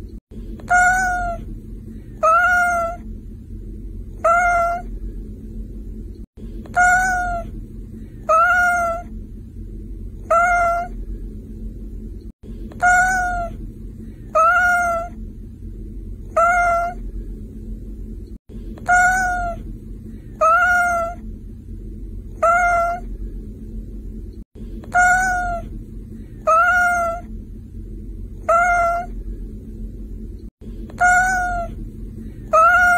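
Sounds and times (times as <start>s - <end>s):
low steady rumble: 0.0s - 32.9s
cat meowing: 0.6s - 1.4s, 2.2s - 3.0s, 4.2s - 4.9s, 6.7s - 7.5s, 8.2s - 9.1s, 10.2s - 11.0s, 12.8s - 13.6s, 14.3s - 15.2s, 16.3s - 17.0s, 18.8s - 19.6s, 20.4s - 21.2s, 22.4s - 23.1s, 24.9s - 25.7s, 26.4s - 27.3s, 28.4s - 29.1s, 31.0s - 31.8s, 32.5s - 32.9s.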